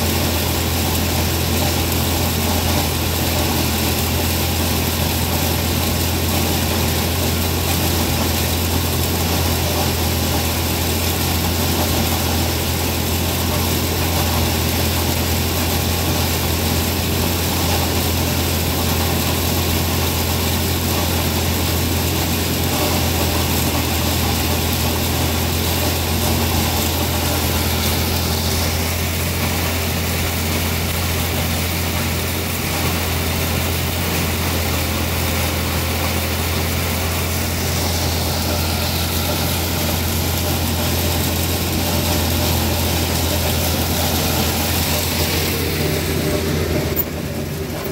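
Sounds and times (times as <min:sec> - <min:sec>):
tractor engine and corn grinder: 0:00.0 - 0:47.9.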